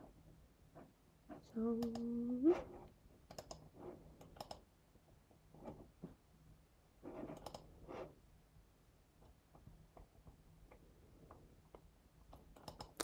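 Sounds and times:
computer keyboard and mouse clicking: 1.8s - 2.1s, 3.2s - 4.7s, 7.3s - 7.7s, 10.7s - 13.0s.

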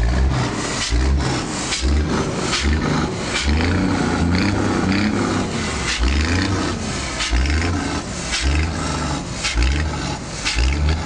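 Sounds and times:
diesel truck engine revving: 0.0s - 11.0s.

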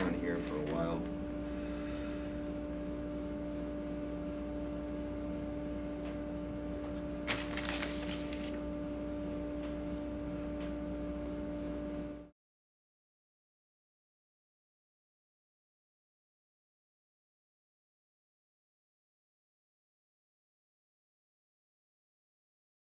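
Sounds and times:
paper sheets rustling: 0.0s - 0.8s, 7.2s - 8.7s
electrical hum: 0.0s - 12.4s.

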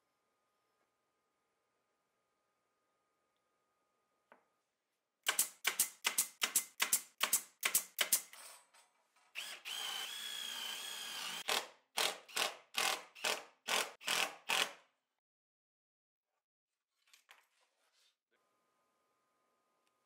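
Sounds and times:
cordless drill driving screws: 9.4s - 14.8s.

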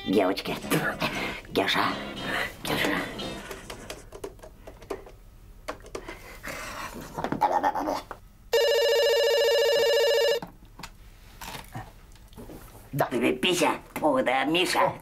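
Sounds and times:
telephone ringing: 8.5s - 10.4s.

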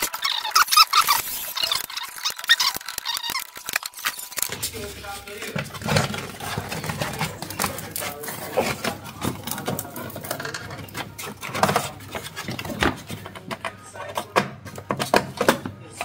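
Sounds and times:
plastic cover clicking and knocking: 5.4s - 16.0s.

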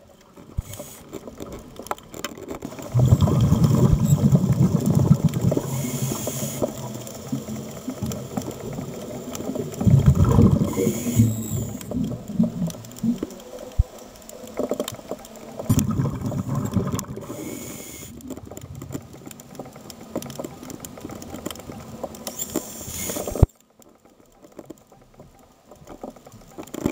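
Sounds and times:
small clicks: 0.1s - 26.9s
exhaled bubbles rumbling underwater: 2.7s - 22.2s
regulator hissing inhale: 5.5s - 7.0s, 10.6s - 11.9s, 17.2s - 18.3s, 22.4s - 23.5s.

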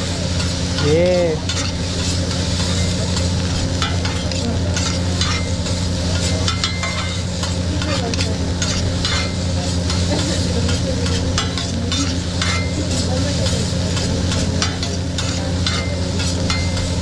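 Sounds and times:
rice sizzling on a griddle: 0.0s - 17.0s
metal spatulas scraping and tapping: 0.3s - 17.0s.

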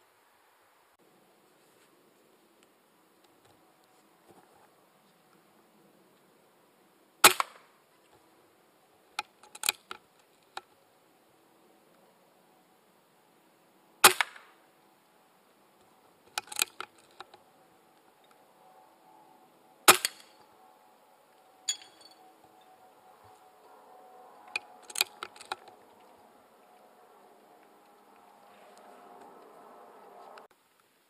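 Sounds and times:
air rifle shots: 7.2s - 7.7s, 14.0s - 14.5s, 19.9s - 20.3s
metallic ping: 21.7s - 22.2s.

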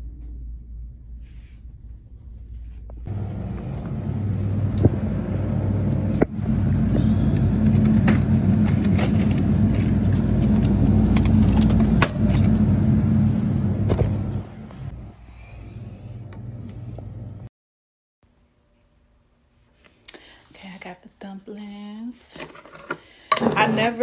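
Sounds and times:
loud low mechanical hum: 0.0s - 17.5s.

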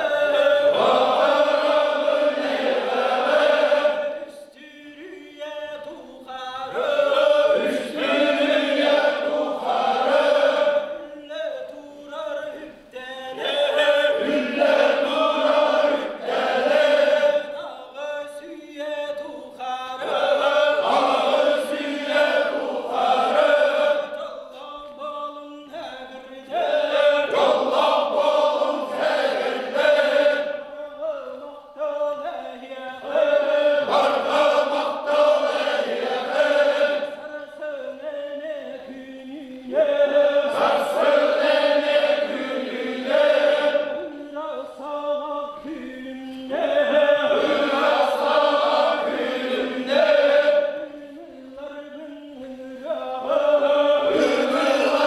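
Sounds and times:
group of men chanting: 0.0s - 4.3s, 6.6s - 11.0s, 13.3s - 17.6s, 20.0s - 24.2s, 26.4s - 30.6s, 32.9s - 37.2s, 39.8s - 44.1s, 46.6s - 50.8s, 53.0s - 55.0s.

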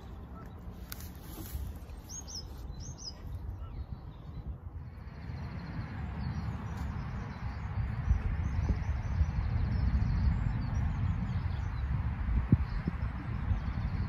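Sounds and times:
bird chirps: 0.0s - 11.9s
wind buffeting microphone: 0.0s - 14.0s.

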